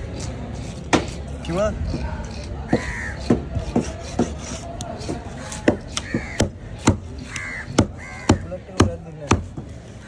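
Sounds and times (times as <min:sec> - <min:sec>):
crows cawing: 0:02.7 - 0:03.3, 0:05.4 - 0:06.6, 0:07.2 - 0:08.8.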